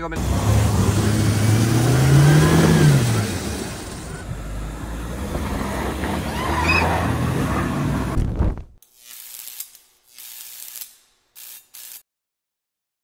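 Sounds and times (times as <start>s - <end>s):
car engine revving: 0.0s - 8.2s.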